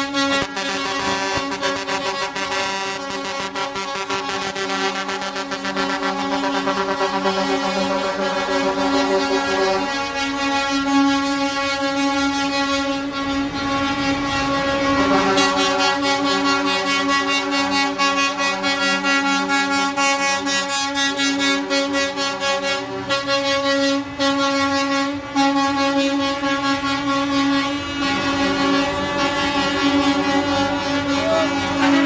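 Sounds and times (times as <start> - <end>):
truck air horns chord: 0.0 - 32.0.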